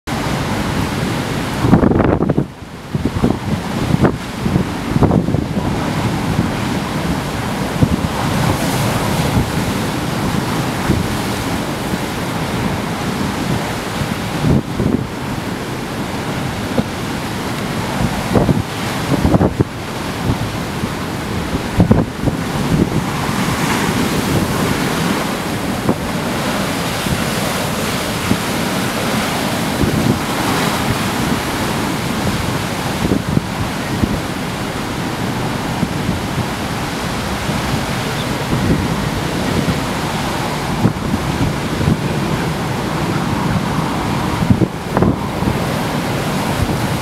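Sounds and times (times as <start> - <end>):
waves breaking against wall: 0.1 - 47.0
wind buffeting microphone: 0.1 - 47.0.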